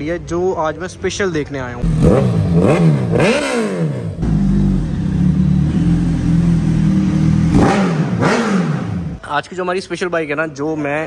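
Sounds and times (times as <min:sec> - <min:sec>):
loud motorcycle engine revving: 0:01.8 - 0:09.2.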